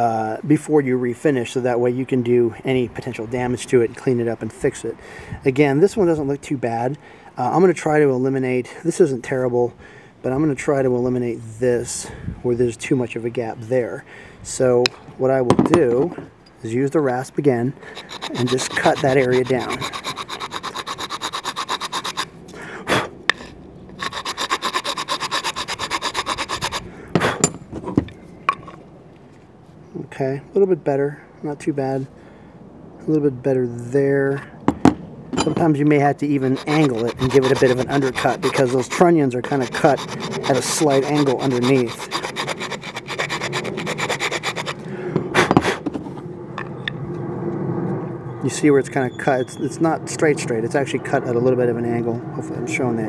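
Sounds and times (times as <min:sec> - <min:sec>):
hand rasp on wood: 0:17.9 - 0:22.3, 0:23.4 - 0:26.8, 0:36.3 - 0:44.8.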